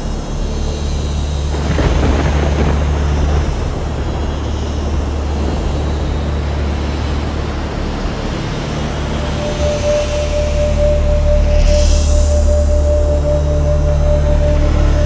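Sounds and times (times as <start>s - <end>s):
low droning rumble: 0.0s - 15.0s
rush of noise: 0.0s - 15.0s
hissing noise: 1.6s - 15.0s.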